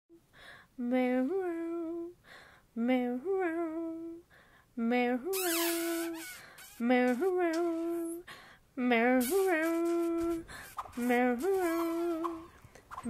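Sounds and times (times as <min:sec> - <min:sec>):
breaths: 0:00.3 - 0:00.8, 0:02.2 - 0:02.7, 0:04.3 - 0:04.8, 0:06.3 - 0:06.7, 0:08.2 - 0:08.7, 0:10.5 - 0:10.8
woman humming: 0:05.0 - 0:08.2, 0:08.9 - 0:12.6.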